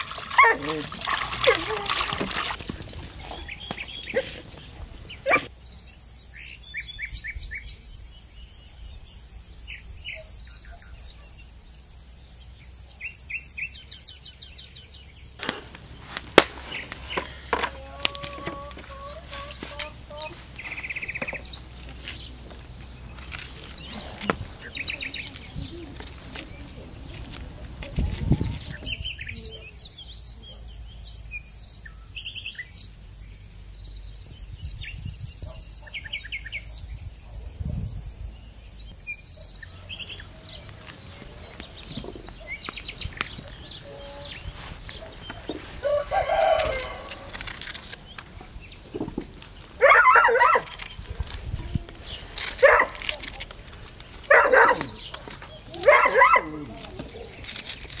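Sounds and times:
small birds chirping: 0.1 - 58.0
fowl calling: 16.0 - 21.4, 43.4 - 47.4
chickens clucking: 16.8 - 20.8
knocks and rustling: 47.4 - 49.8.

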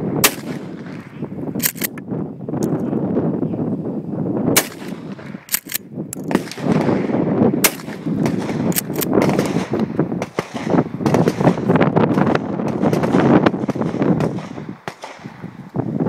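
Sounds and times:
shotgun blasts: 0.1 - 2.0, 4.5 - 15.5
sharp clicks: 1.6 - 2.0, 4.6 - 6.6, 7.7 - 10.5.

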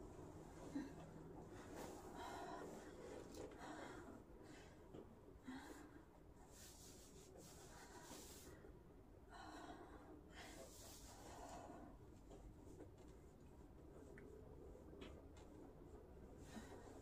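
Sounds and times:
person breathing heavily: 0.4 - 12.0.

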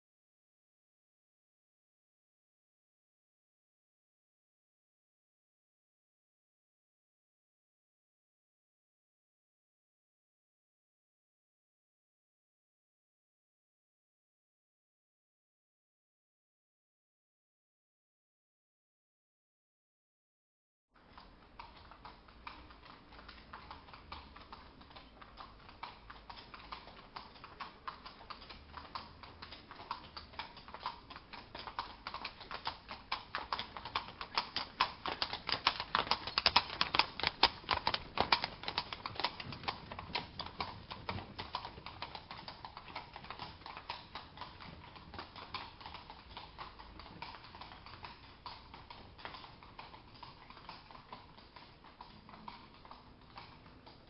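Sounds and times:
horse hooves clip-clopping: 21.0 - 54.0.

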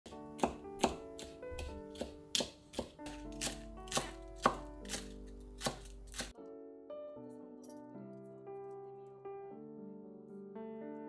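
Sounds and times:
knife slicing cabbage on wooden board: 0.1 - 6.3.

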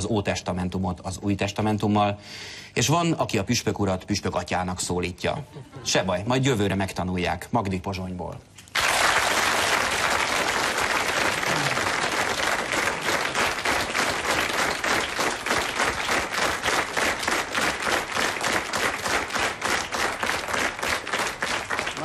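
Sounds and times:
audience applauding: 8.7 - 22.0
rhythmic unison clapping: 8.7 - 22.0.

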